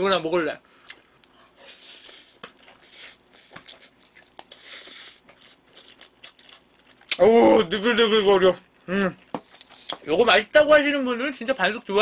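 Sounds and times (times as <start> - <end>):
wet chewing with mouth clicks: 0.8 - 7.2, 9.2 - 10.0.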